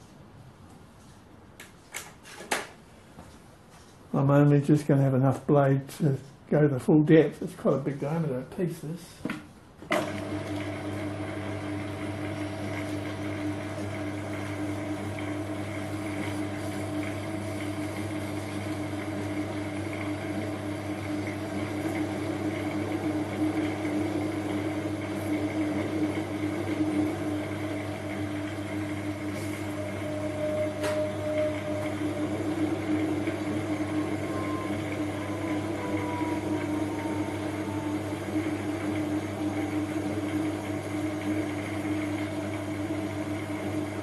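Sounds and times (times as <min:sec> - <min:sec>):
lathe motor humming: 0:10.0 - 0:44.0.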